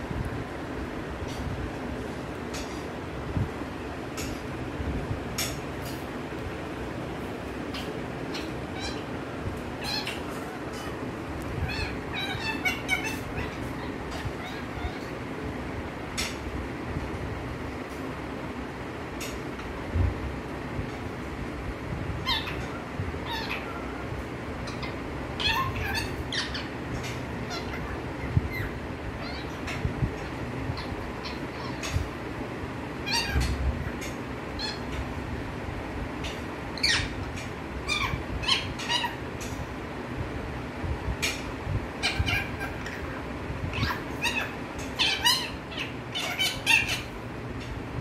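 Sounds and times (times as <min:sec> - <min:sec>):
parakeet squawks and chirps: 0:07.7 - 0:15.3, 0:22.2 - 0:32.2, 0:33.0 - 0:35.2, 0:36.2 - 0:39.7, 0:41.2 - 0:47.7.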